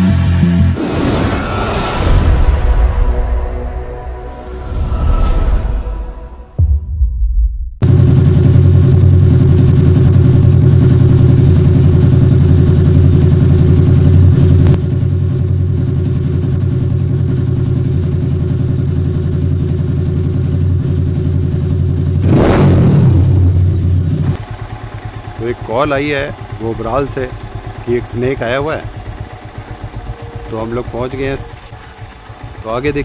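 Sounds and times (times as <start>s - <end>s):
engine idling: 7.8s - 22.3s, 23.1s - 33.0s.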